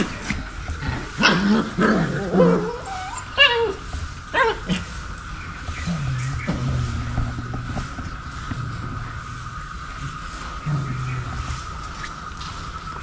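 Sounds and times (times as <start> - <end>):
puppies whimpering and yipping: 1.1 - 5.0
low drone: 4.9 - 13.0.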